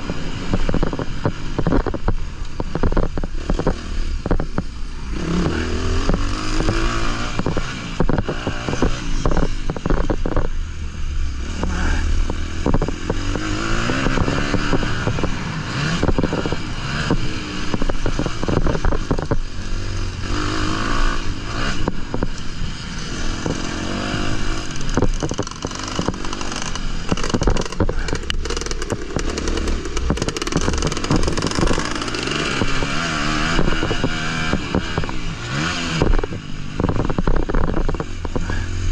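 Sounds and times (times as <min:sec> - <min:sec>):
bike knocks and rattles: 0:00.0 - 0:04.7, 0:12.2 - 0:19.5, 0:23.4 - 0:38.6
motocross engine revving: 0:02.6 - 0:38.9.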